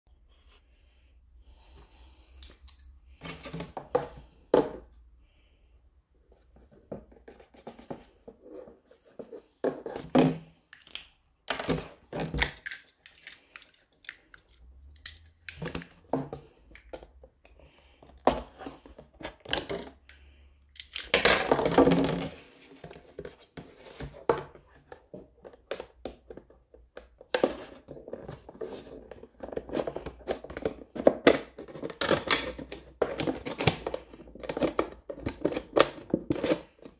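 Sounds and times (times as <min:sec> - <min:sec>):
plastic crackling and crinkling: 0:10.8 - 0:16.2.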